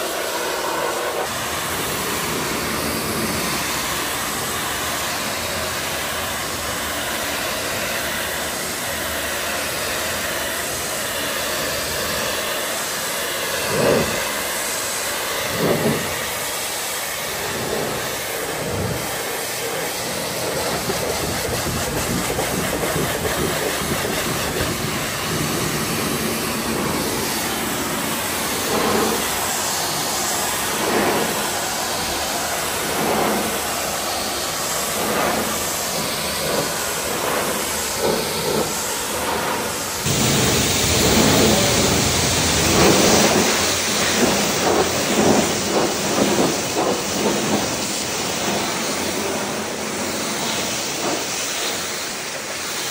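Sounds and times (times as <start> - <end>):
pressure washer jet hissing: 0.0 - 52.9.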